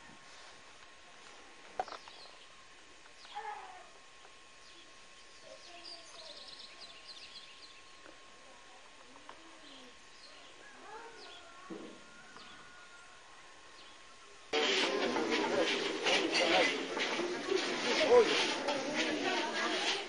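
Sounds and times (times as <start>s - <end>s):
low steady hiss: 0.0s - 14.5s.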